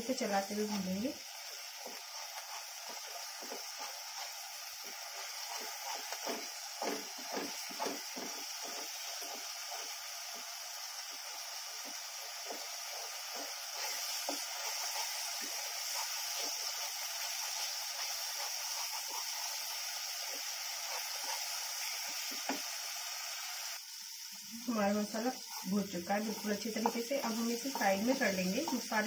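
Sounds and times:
sauce sizzling in oil: 0:00.0 - 0:29.0
wooden spatula scraping pan: 0:00.5 - 0:10.4, 0:11.7 - 0:19.6, 0:25.3 - 0:29.0.

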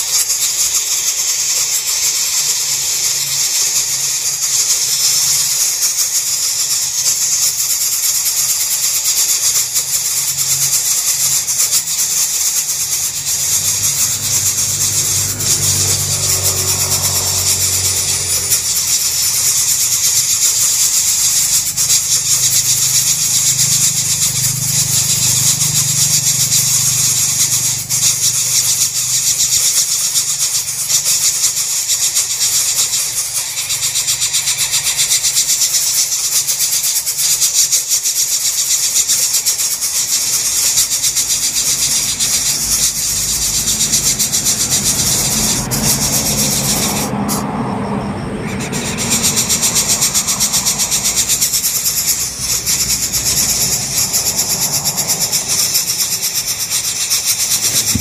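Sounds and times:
nestlings begging with rasping hiss: 0:00.0 - 0:58.0.

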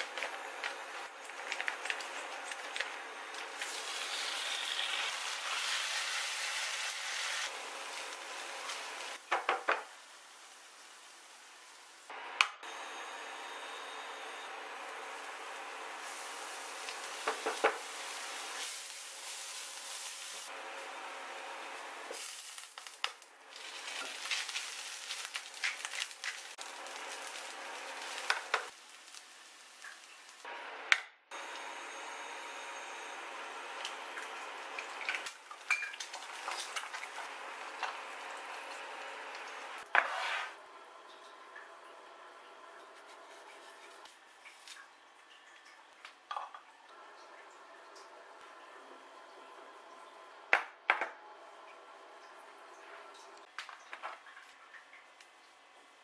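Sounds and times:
pork sizzling in a pan: 0:00.0 - 0:12.1, 0:12.7 - 0:30.5, 0:31.4 - 0:40.5.

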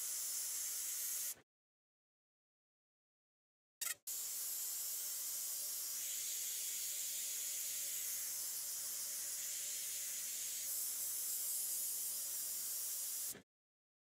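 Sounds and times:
airbrush spraying hiss: 0:05.6 - 0:13.4.

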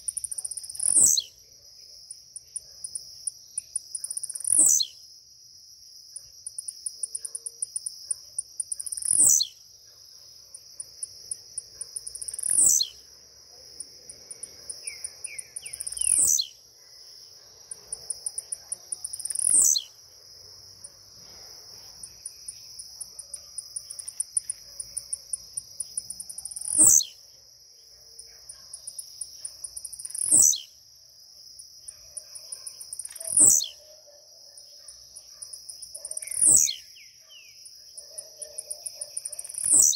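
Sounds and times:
bird singing: 0:00.0 - 0:05.0, 0:08.6 - 0:09.6, 0:11.4 - 0:20.0, 0:21.8 - 0:30.8, 0:31.8 - 0:39.9.

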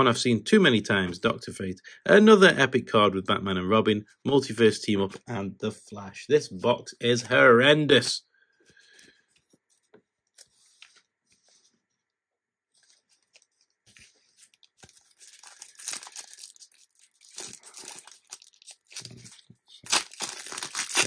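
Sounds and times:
wrapper tearing and crinkling: 0:14.8 - 0:21.0.

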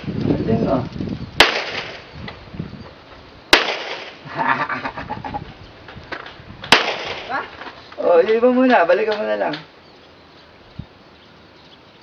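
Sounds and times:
pistol shot with echo: 0:01.4 - 0:02.0, 0:03.5 - 0:04.2, 0:06.7 - 0:07.3.

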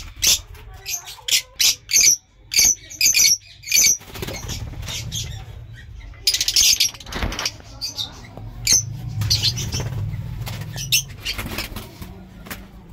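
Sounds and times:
wings fluttering: 0:03.9 - 0:05.7, 0:06.6 - 0:08.1, 0:08.9 - 0:12.9.

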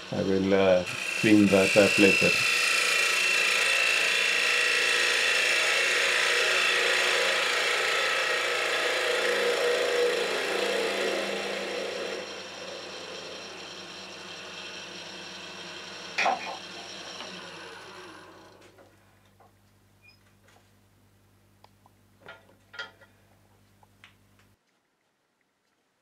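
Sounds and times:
wood lathe running: 0:00.0 - 0:18.8
gouge scraping wood on lathe: 0:00.9 - 0:18.7.

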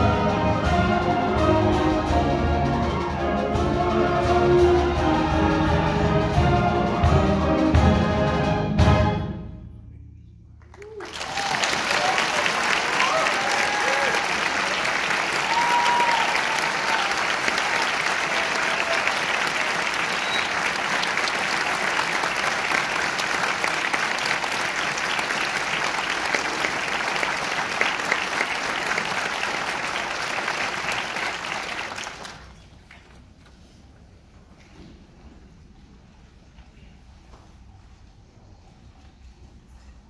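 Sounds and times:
audience applauding: 0:10.6 - 0:33.2.

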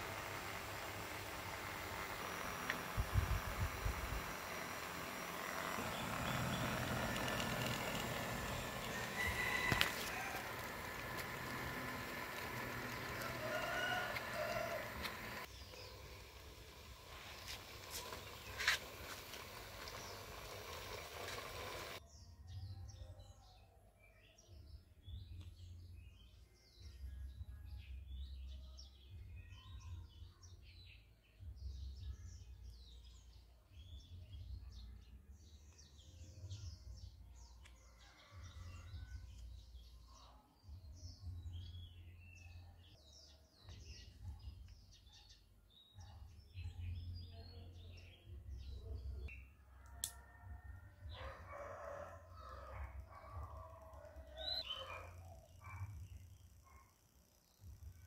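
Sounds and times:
birds chirping: 0:00.0 - 0:22.0, 0:52.6 - 0:56.8
toy plane motor whirring: 0:00.0 - 0:22.0.

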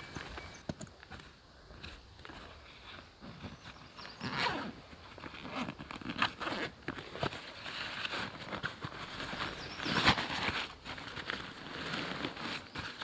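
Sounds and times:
nylon fabric rustling: 0:04.2 - 0:04.7, 0:05.4 - 0:13.0
zipper rasping open: 0:04.2 - 0:07.1.

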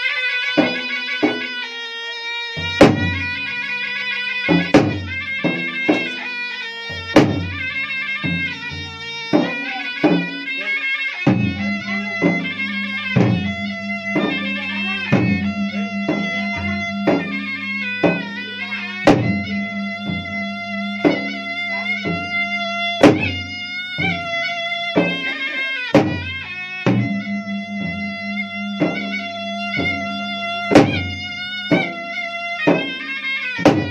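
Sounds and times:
reedy shawm melody: 0:00.0 - 0:33.9
barrel drums beaten: 0:02.6 - 0:06.3, 0:06.9 - 0:33.9
low steady drone: 0:11.4 - 0:24.4, 0:27.0 - 0:31.6.

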